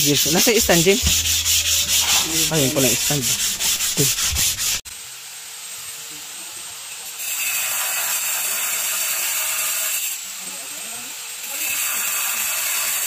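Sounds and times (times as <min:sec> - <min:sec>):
sandpaper rubbing on wall panel: 0:00.0 - 0:04.8.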